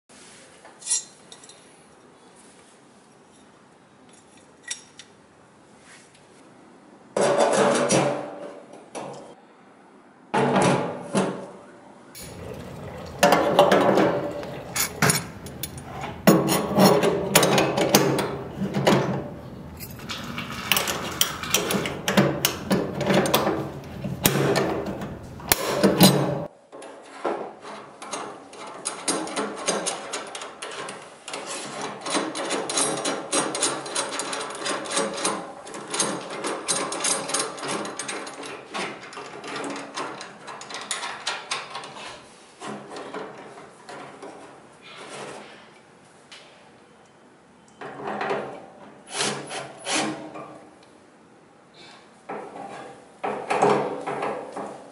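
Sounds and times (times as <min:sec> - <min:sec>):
metal clicks and scrapes: 0:12.2 - 0:26.5.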